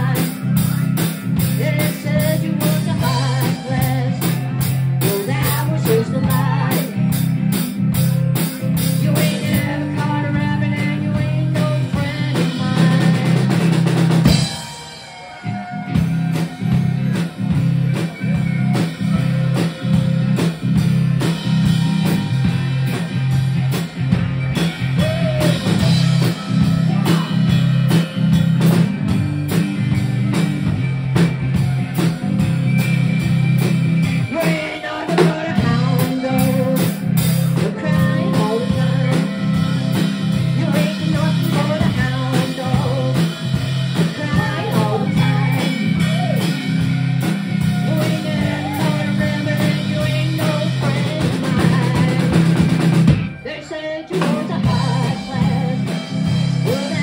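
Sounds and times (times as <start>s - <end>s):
woman singing: 0.0s - 7.2s, 8.8s - 14.4s, 34.3s - 46.5s, 47.6s - 52.8s, 53.4s - 57.0s
drum kit: 0.0s - 57.0s
harmonica: 12.6s - 41.3s.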